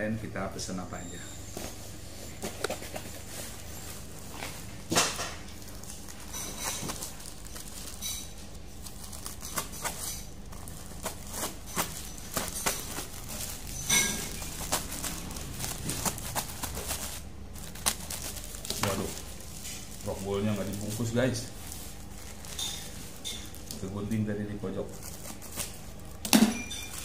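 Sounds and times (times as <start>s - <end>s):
plastic crinkling and rustling: 1.6s - 27.0s
scissors cutting plastic: 5.0s - 21.2s.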